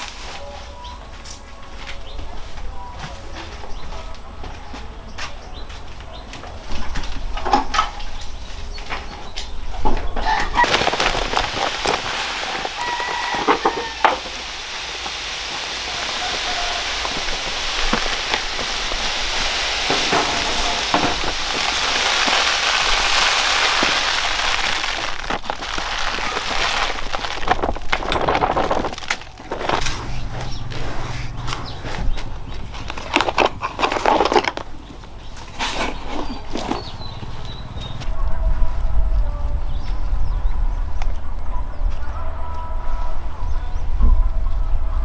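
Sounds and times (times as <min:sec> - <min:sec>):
steady hiss: 0:10.5 - 0:32.3
chicken call: 0:12.5 - 0:14.4, 0:15.7 - 0:17.4.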